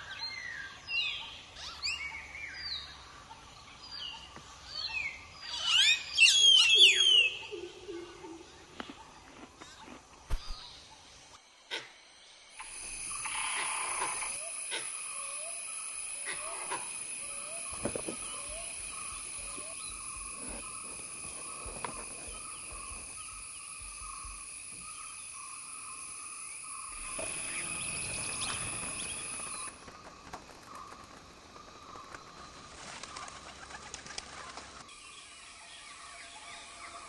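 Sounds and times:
birds calling: 12.6 - 34.9
flock of birds wing flaps: 27.5 - 34.9.

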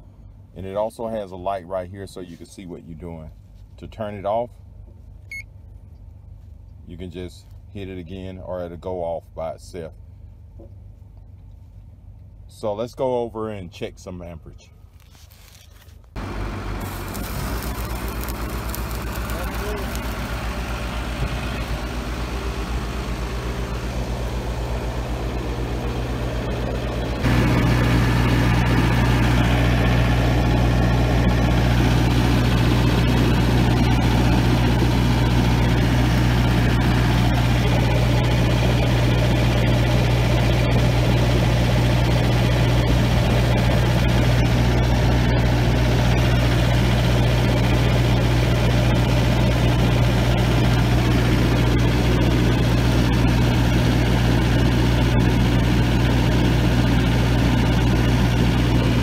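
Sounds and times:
welding machine engine humming: 16.2 - 59.0.

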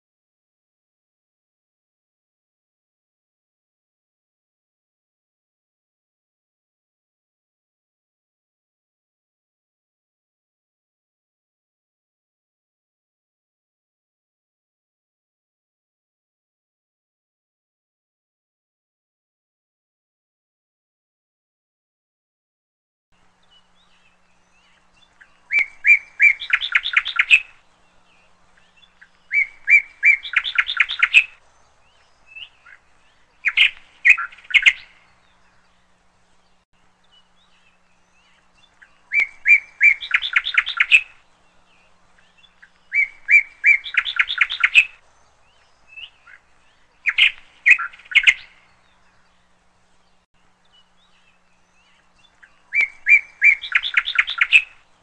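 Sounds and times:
songbird singing trill: 23.2 - 55.0.

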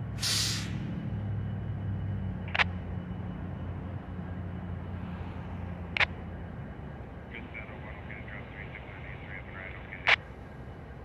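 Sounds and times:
diesel locomotives idling: 0.0 - 11.0
air hiss burst: 0.2 - 0.8.

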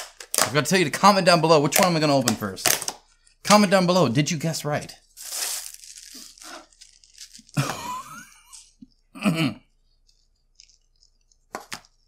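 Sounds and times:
plastic packaging crinkling: 5.1 - 7.7, 9.9 - 12.0.

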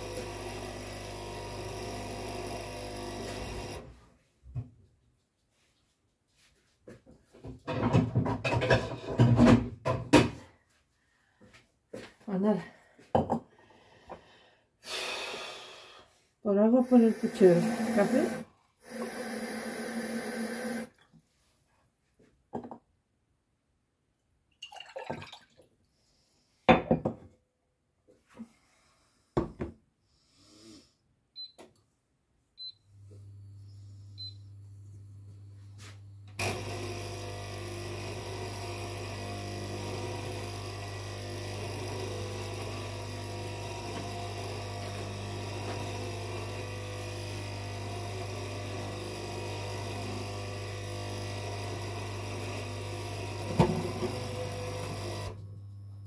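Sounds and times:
kitchen appliance running: 0.0 - 3.9, 16.8 - 20.9, 36.2 - 56.0
kitchen appliance humming: 0.0 - 4.0, 16.8 - 21.0, 32.9 - 56.0.

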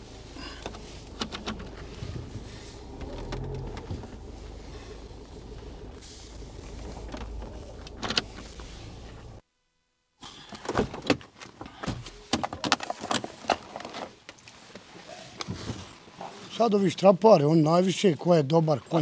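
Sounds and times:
steady low rumble: 0.0 - 9.4.

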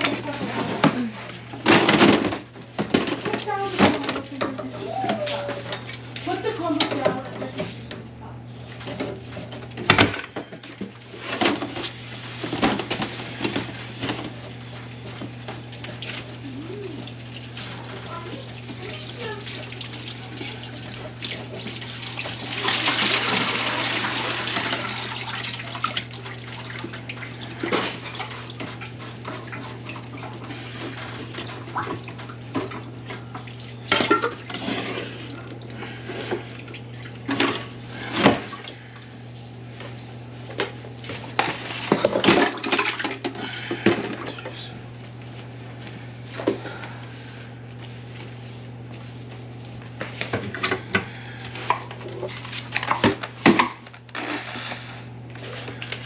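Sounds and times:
clanks and knocks at sink: 1.6 - 6.0, 6.8 - 7.7
water running into sink: 13.4 - 37.6.

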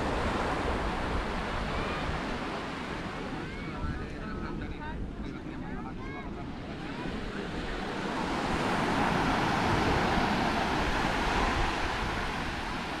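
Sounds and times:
surf washing onto beach: 6.0 - 13.0.

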